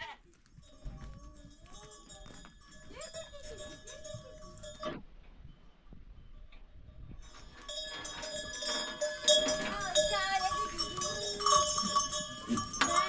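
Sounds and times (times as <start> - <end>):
goats and sheep bleating: 0.0 - 0.4, 9.4 - 13.0
livestock bells ringing: 0.4 - 13.0.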